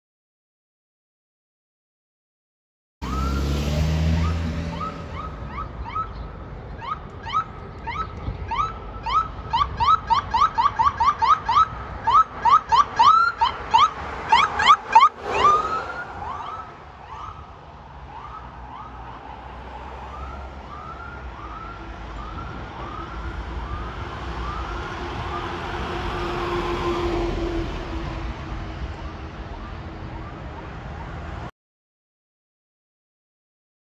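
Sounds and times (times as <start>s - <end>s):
electronic siren yelping: 3.0s - 3.5s, 4.1s - 6.2s, 6.8s - 17.5s.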